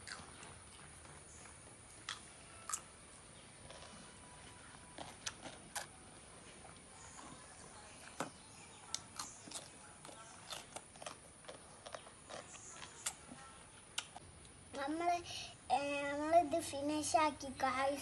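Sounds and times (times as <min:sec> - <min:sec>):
child crunching food: 0:00.0 - 0:00.9, 0:02.0 - 0:03.0, 0:03.6 - 0:04.2, 0:04.9 - 0:06.0, 0:08.9 - 0:14.2
lip smacks: 0:13.9 - 0:14.2.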